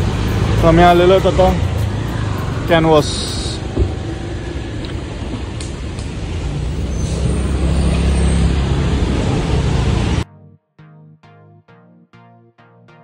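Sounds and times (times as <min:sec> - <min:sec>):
vehicle engine rumble: 0:00.0 - 0:10.2
plucked background music: 0:10.2 - 0:13.0.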